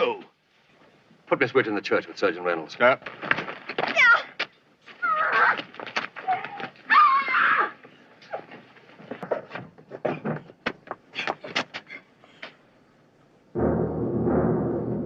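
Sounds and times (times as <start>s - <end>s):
woman wailing and shrieking: 6.2s - 8.4s.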